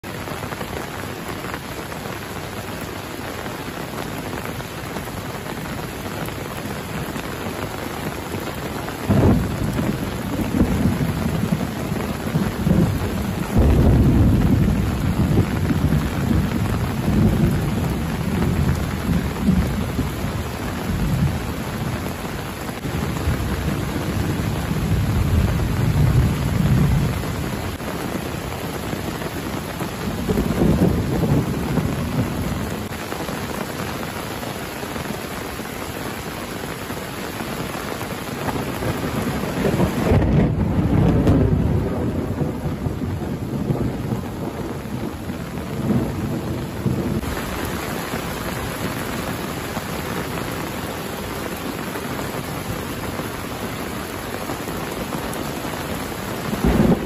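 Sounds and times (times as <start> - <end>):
heavy rain: 0.0 - 57.0
thunder rumbling: 8.6 - 33.5, 38.4 - 49.5, 56.3 - 57.0.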